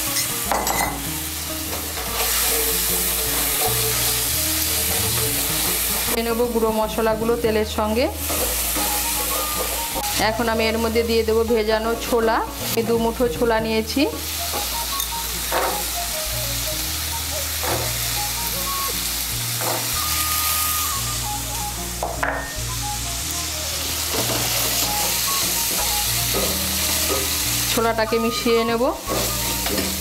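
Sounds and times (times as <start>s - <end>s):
chickpeas sizzling in hot oil: 0.0s - 30.0s
soft background music: 0.0s - 30.0s.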